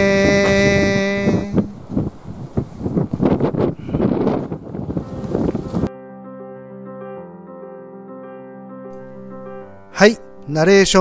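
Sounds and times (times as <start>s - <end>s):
gusty wind buffeting microphone: 0.0s - 5.9s.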